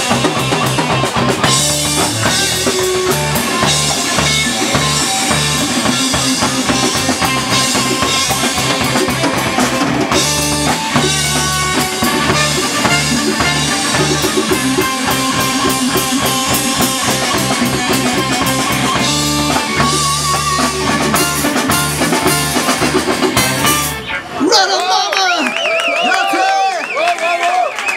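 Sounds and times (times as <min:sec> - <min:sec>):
drum kit: 0:00.0 - 0:24.3
electric bass: 0:00.0 - 0:24.5
electric guitar: 0:00.0 - 0:25.2
saxophone: 0:10.1 - 0:24.3
trumpet: 0:10.6 - 0:15.8, 0:19.4 - 0:24.3.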